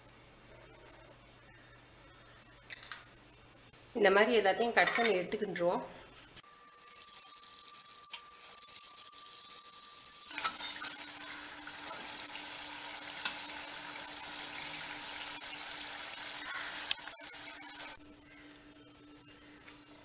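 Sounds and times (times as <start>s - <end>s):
food sizzling in hot oil: 6.4s - 18.0s.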